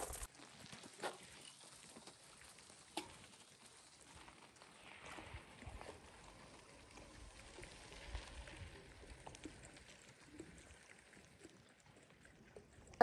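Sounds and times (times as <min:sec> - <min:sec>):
light scattered crackles: 0:00.0 - 0:13.0.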